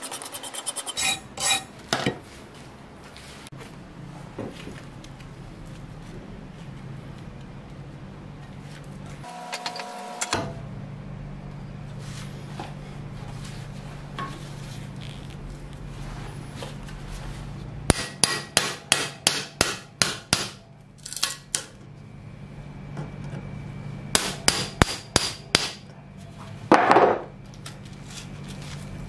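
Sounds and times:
steady low hum: 10.4 - 29.0
hammer striking chisel: 17.9 - 20.6, 24.2 - 25.8.

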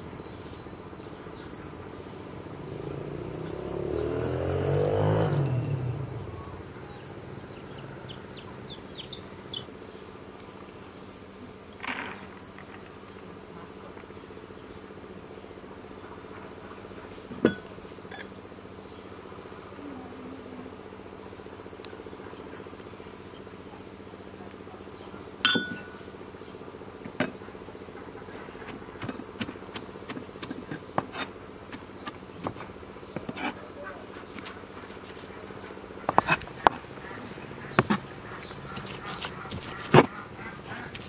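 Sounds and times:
wooden pestle pounding food: 28.7 - 33.6.

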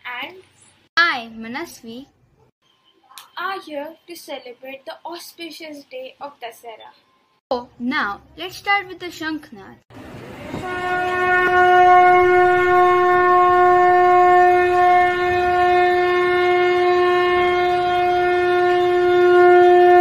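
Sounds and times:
conch shell blown: 10.3 - 20.0.

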